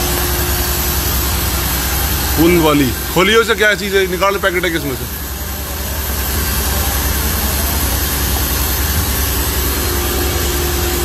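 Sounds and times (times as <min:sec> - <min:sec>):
factory machine motor drone: 0:00.0 - 0:11.0
steady hum: 0:00.0 - 0:11.0.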